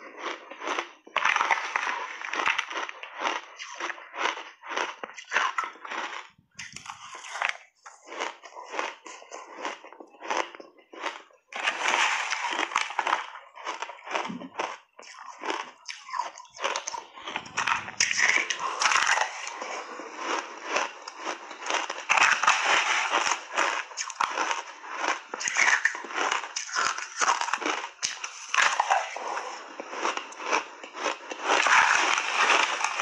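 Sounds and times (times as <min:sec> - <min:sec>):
crunching and chewing ice: 0:00.0 - 0:33.0.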